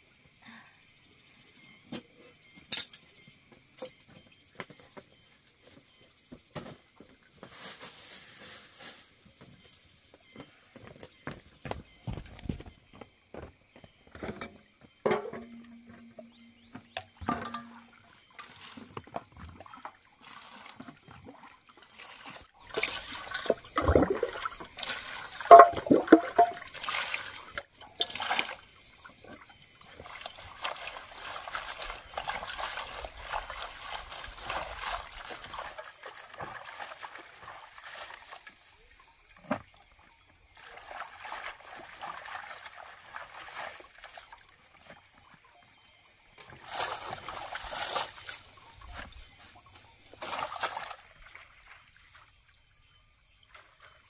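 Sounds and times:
water sloshing and trickling: 1.1s - 54.0s
water splashing into metal basin: 15.0s - 18.7s, 19.6s - 29.2s, 29.8s - 39.0s, 46.3s - 49.4s, 50.1s - 51.9s.

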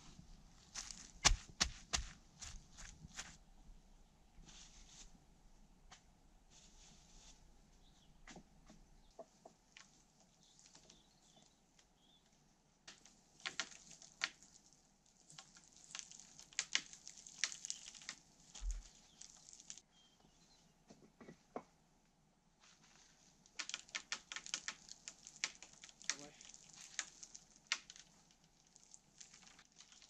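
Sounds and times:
crackles on dry forest ground: 0.0s - 3.4s, 9.7s - 12.0s, 12.8s - 19.9s, 22.7s - 30.0s.

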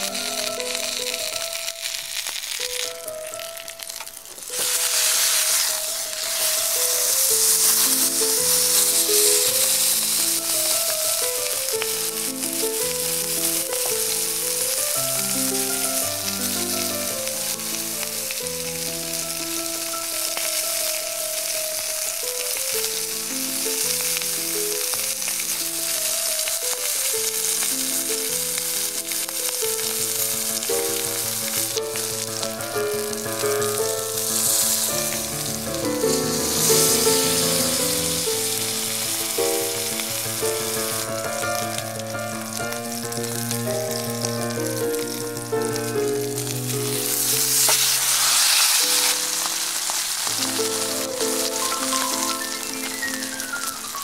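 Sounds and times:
background music: 0.0s - 3.9s, 27.2s - 47.8s
steak sizzling in a skillet: 0.0s - 54.0s.

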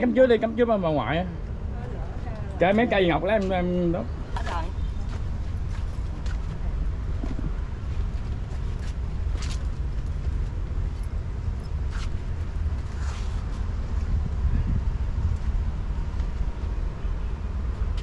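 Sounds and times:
wind buffeting microphone: 4.1s - 17.8s.

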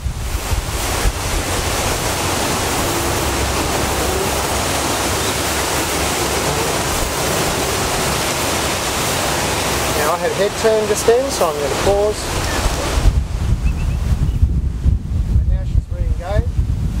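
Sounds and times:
wind blowing across microphone: 0.0s - 17.0s.

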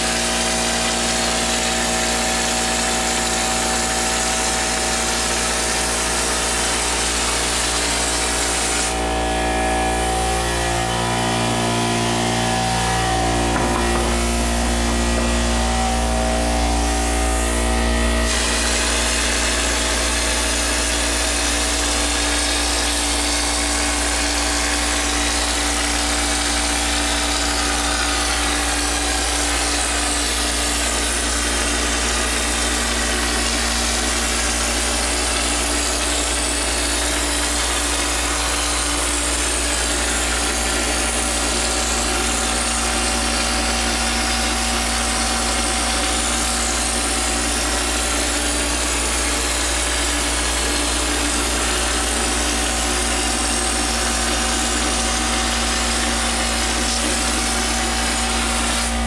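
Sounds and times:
air compressor humming: 0.0s - 59.0s
compressed air spraying from nozzle: 6.3s - 9.1s, 18.3s - 20.0s.

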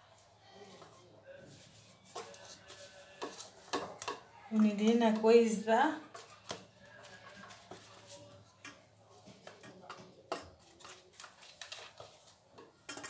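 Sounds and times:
pastry crinkling: 10.4s - 13.0s.

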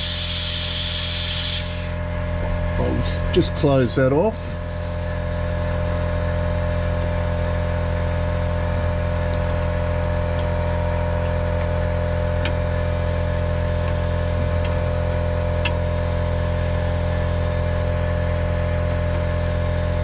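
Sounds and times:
air compressor motor running: 0.0s - 20.0s.

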